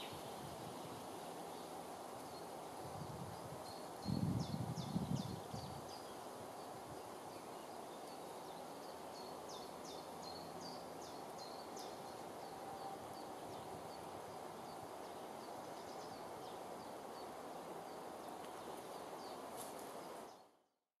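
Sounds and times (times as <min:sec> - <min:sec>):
background hiss: 0:00.0 - 0:20.7
small birds chirping: 0:03.3 - 0:20.6
low rustle: 0:18.3 - 0:20.4.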